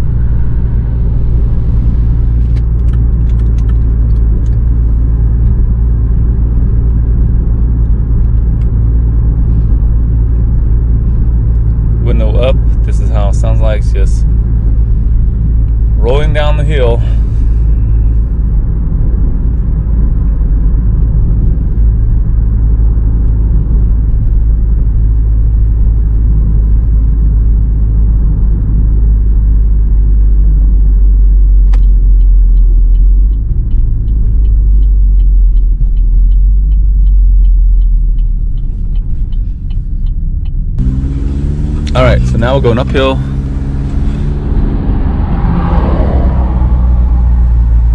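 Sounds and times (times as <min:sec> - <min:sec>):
car engine drone: 0:00.0 - 0:47.9
road noise: 0:00.0 - 0:47.9
regular light ticking: 0:31.8 - 0:40.8.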